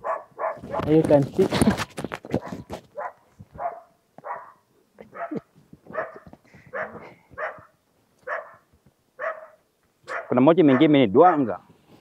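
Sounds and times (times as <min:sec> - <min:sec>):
dog barking: 0:00.0 - 0:00.9, 0:02.4 - 0:11.6
clicks and rustles: 0:00.6 - 0:03.6.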